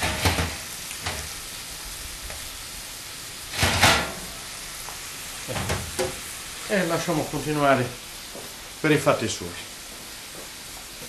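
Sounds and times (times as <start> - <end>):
meat sizzling in oven: 0.0 - 11.0
metal rack and tray clatter: 3.5 - 4.3.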